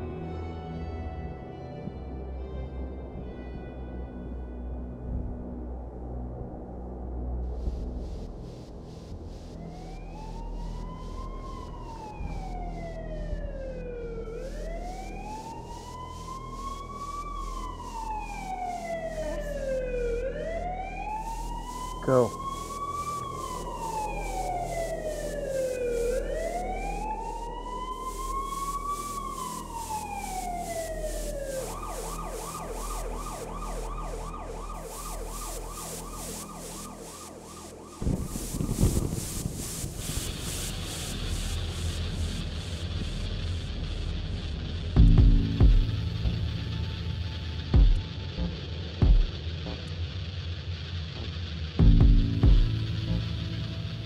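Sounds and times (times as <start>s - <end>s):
emergency siren wailing: 9.4s - 41.6s.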